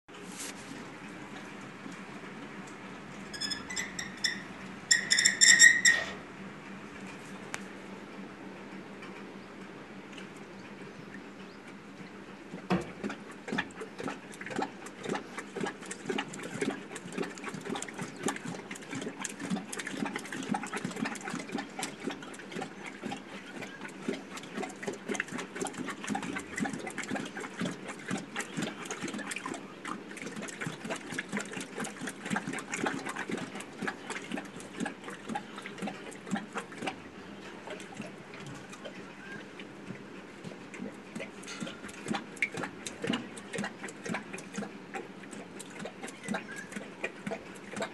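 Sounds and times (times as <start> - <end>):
lion lapping water: 0.1 - 8.5, 9.6 - 47.9.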